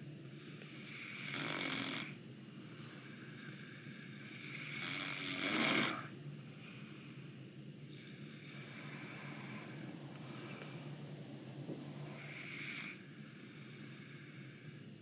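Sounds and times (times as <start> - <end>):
man snoring: 0.6 - 2.2, 3.4 - 6.1, 7.9 - 10.8, 11.9 - 14.6.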